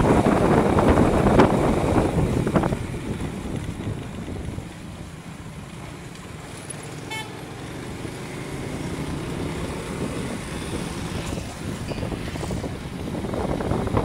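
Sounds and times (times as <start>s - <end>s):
vehicle engine and road noise: 0.0s - 14.0s
vehicle horn toot: 7.1s - 7.4s.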